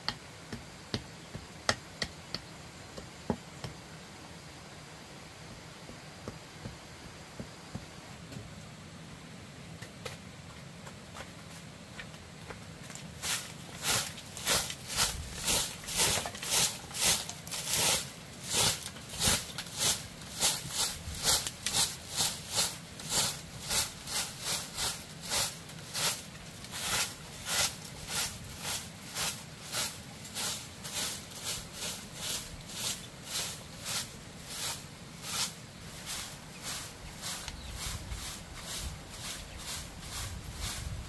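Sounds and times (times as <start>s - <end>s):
broom sweeping stone floor: 9.9s - 41.0s.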